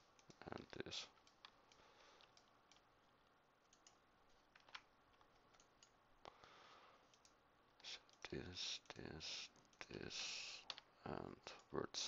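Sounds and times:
mouse and keyboard clicks: 0:00.1 - 0:02.9, 0:03.6 - 0:06.0.

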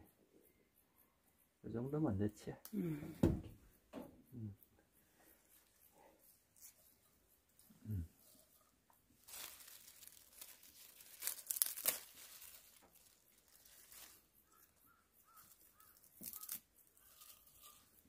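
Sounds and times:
herb leaves rustling and crackling: 0:06.6 - 0:06.8, 0:08.2 - 0:18.0.

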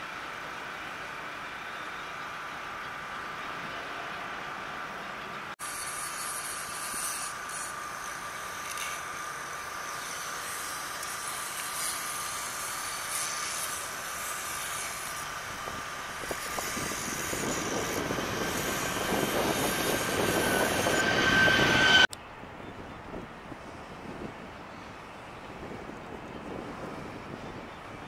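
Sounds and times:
jet engine whine at takeoff: 0:07.3 - 0:28.0.

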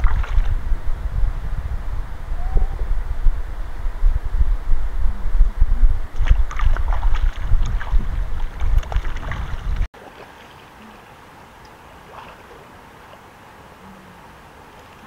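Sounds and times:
water splashing and dribbling: 0:00.0 - 0:00.6, 0:06.2 - 0:13.7, 0:14.6 - 0:15.0
wind rumbling on microphone: 0:00.0 - 0:09.9.

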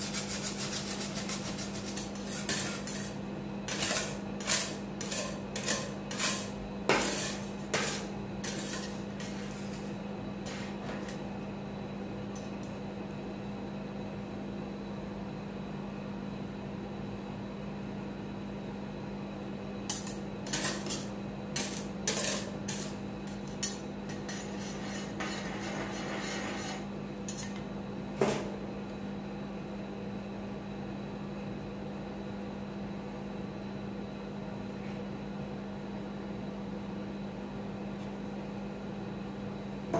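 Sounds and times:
spatulas scraping on steel plate: 0:00.0 - 0:09.9, 0:20.0 - 0:27.6
steady low hum: 0:00.0 - 0:39.9.

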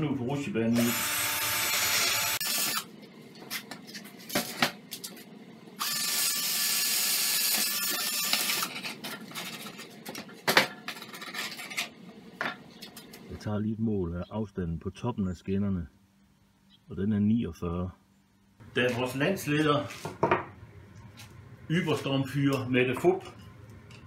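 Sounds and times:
cordless drill boring through board: 0:00.8 - 0:02.8, 0:05.8 - 0:08.7.

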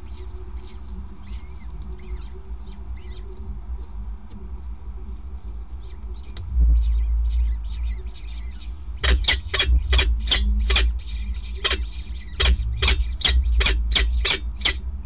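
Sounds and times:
steady low rumble: 0:00.0 - 0:15.0
falcon chicks peeping shrilly: 0:08.4 - 0:14.8.

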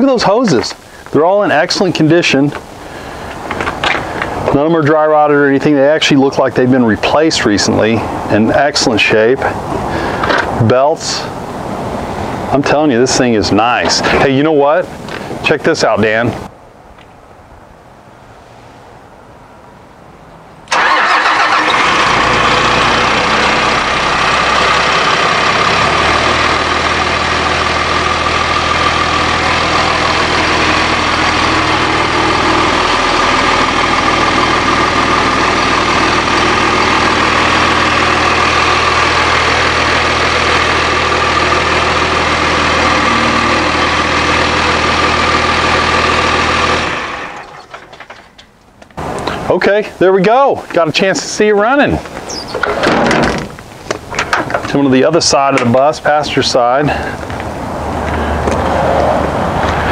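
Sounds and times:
diesel engine starting and idling: 0:20.7 - 0:48.2, 0:55.5 - 0:59.9
steady whine: 0:22.0 - 0:49.9.

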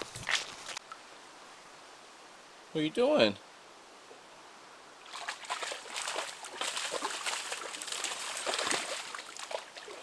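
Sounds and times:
dog splashing in puddle: 0:05.0 - 0:10.0.

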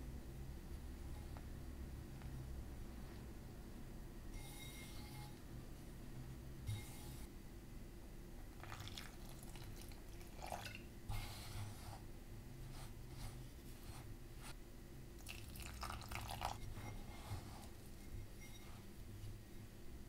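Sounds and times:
milk pouring: 0:08.6 - 0:10.9, 0:15.2 - 0:16.6
wooden spoon stirring dough: 0:16.2 - 0:18.9.

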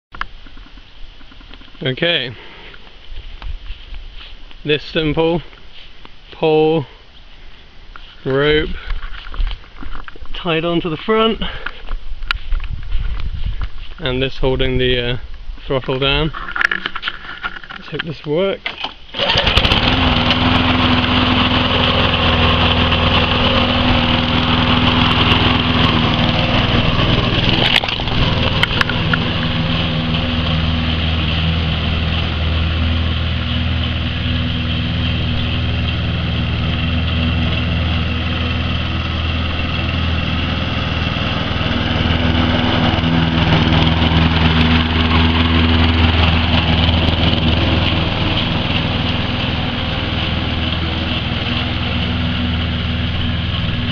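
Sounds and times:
lawn mower engine running: 0:18.6 - 0:53.9.

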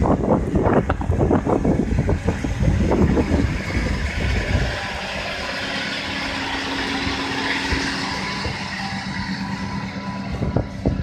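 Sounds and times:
tractor diesel engine droning: 0:00.0 - 0:11.0
wind buffeting microphone: 0:00.0 - 0:11.0.

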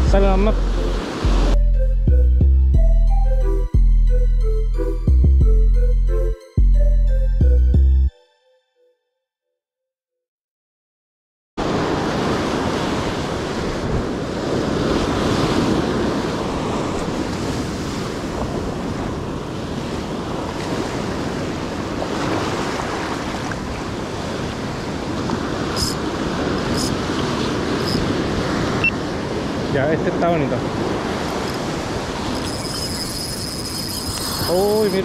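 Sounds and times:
ocean surf washing on shore: 0:00.0 - 0:01.6, 0:11.6 - 0:35.0.

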